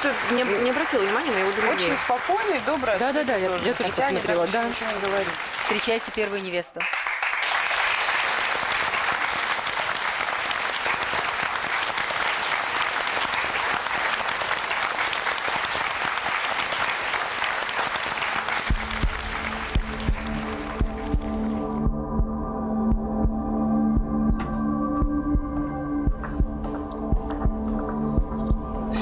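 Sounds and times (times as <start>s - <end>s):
studio audience applauding: 0.0s - 21.8s
music with low thudding beat: 18.7s - 29.0s.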